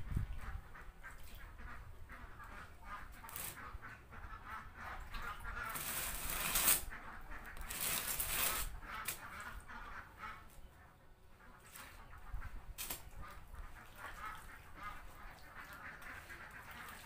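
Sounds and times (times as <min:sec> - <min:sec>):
ducks quacking: 0:00.1 - 0:05.9, 0:06.8 - 0:07.7, 0:08.6 - 0:17.0
wet feed squelching: 0:11.4 - 0:17.0.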